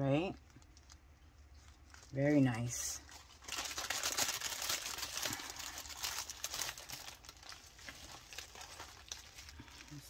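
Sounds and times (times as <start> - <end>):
plastic bags crinkling: 0.0 - 10.0.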